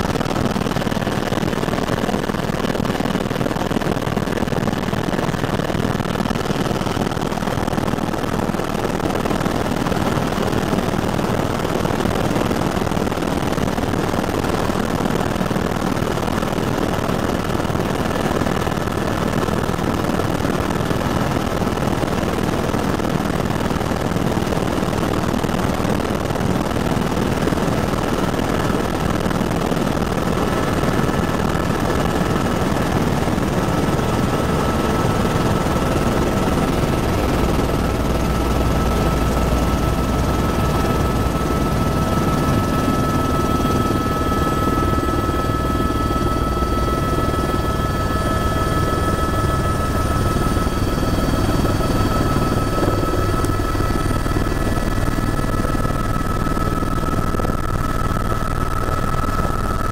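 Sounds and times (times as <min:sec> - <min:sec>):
helicopter engine and rotor: 0:00.0 - 0:59.9
high whine: 0:33.2 - 0:59.9.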